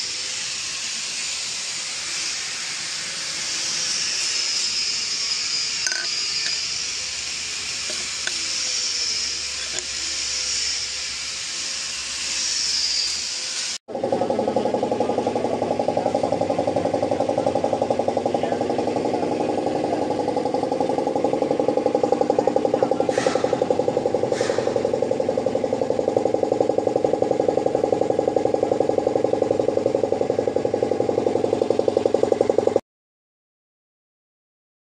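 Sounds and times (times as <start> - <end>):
car engine idling: 14.0 - 32.8
short hisses: 23.1 - 23.6, 24.3 - 24.8.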